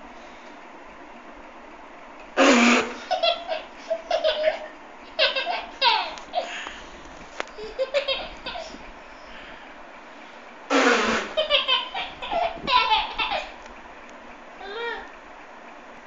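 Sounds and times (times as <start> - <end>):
baby laughing: 2.4 - 6.6, 7.5 - 8.8, 10.8 - 13.6.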